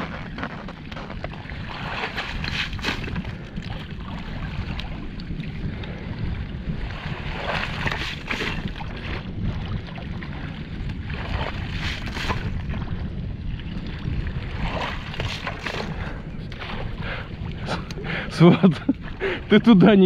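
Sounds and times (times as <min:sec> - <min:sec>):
ice chunks scraping and sloshing: 0:00.0 - 0:03.2, 0:11.4 - 0:12.6
wind rumble on microphone: 0:00.0 - 0:20.0.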